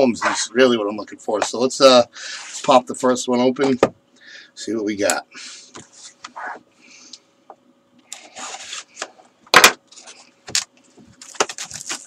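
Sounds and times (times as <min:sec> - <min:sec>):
cardboard scraping and rustling: 0:08.2 - 0:09.0, 0:11.0 - 0:12.0.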